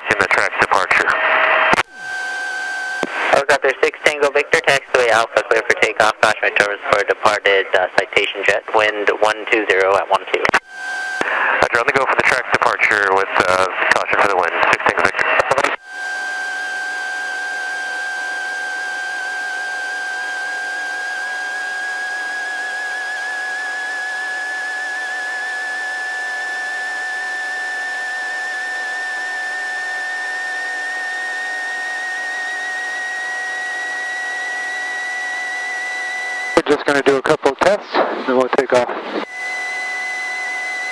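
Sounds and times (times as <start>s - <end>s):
high electronic whine: 0.3s - 3.9s, 10.5s - 13.0s, 14.8s - 40.9s.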